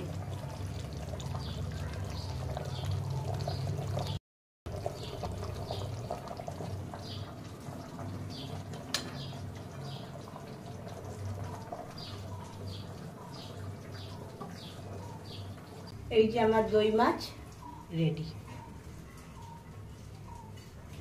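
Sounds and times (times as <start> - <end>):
liquid pouring: 0.0 - 15.9.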